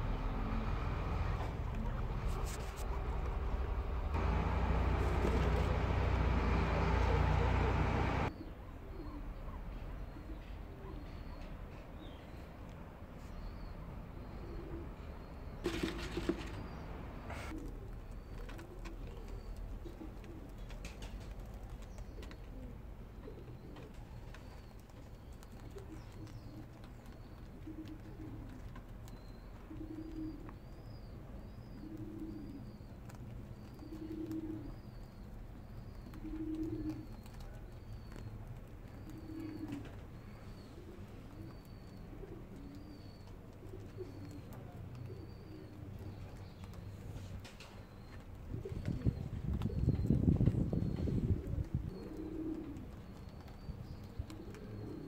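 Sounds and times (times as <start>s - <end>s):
dove cooing: 0.0s - 8.3s, 14.0s - 55.0s
small bird chirping: 21.9s - 55.0s.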